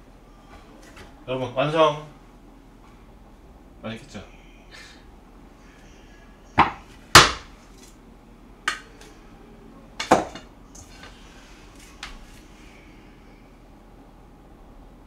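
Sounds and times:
hard objects knocking: 6.6 - 7.5, 10.0 - 10.5.

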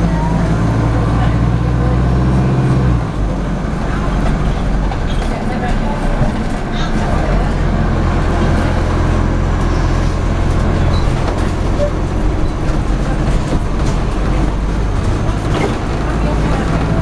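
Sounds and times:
bus diesel engine drone: 0.0 - 17.0
road and body noise: 0.0 - 17.0.

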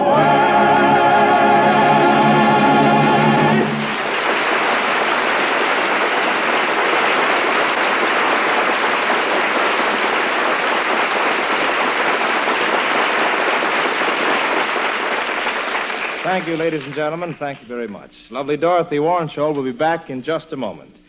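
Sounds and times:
audience applauding: 1.8 - 17.8.

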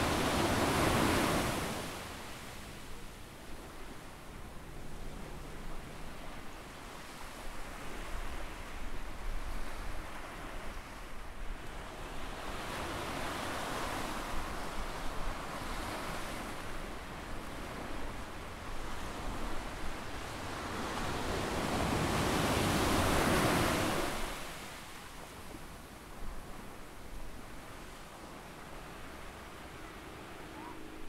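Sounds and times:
ocean waves breaking: 0.0 - 2.9, 11.8 - 31.0.

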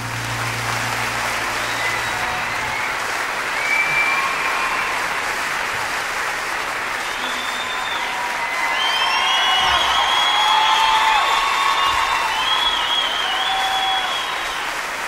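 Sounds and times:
low piano note: 0.0 - 3.2
audience applauding: 0.0 - 15.0
whistles: 1.6 - 5.2, 7.0 - 14.8.

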